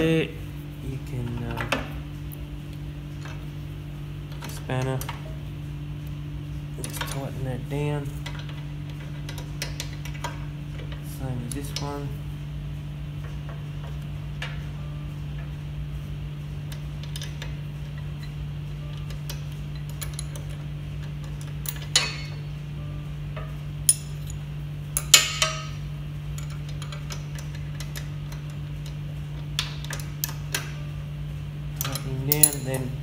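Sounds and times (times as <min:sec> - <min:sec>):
steady low hum: 0:00.0 - 0:33.0
spanner clinking on metal: 0:16.7 - 0:22.5, 0:23.4 - 0:30.9, 0:31.8 - 0:33.0.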